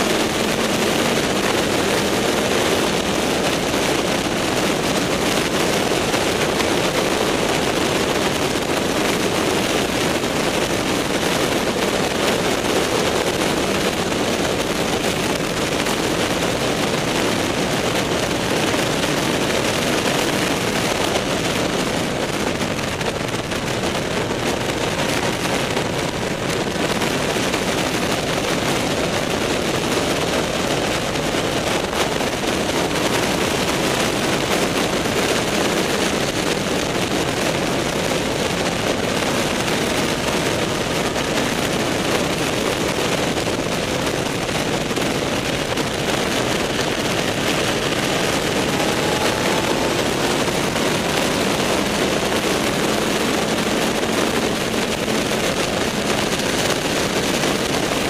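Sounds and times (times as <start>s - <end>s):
motorcycle engine running: 0.0s - 58.0s
wind buffeting microphone: 0.0s - 58.0s.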